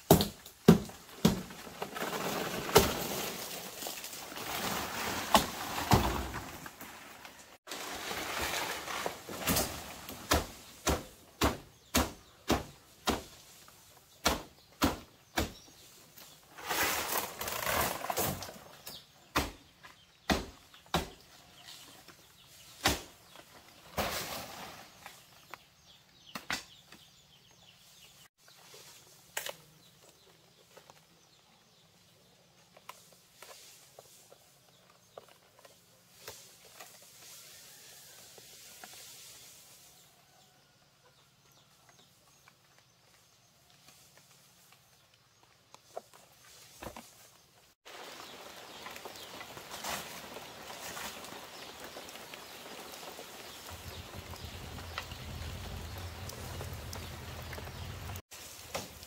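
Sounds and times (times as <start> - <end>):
rustling noise: 1.5 - 10.9, 15.7 - 18.9, 32.6 - 40.6, 41.7 - 59.0.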